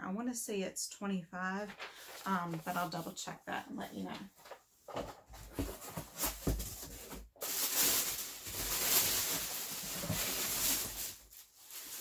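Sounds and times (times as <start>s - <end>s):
packaging and clothing rustling: 1.6s - 3.1s, 4.1s - 12.0s.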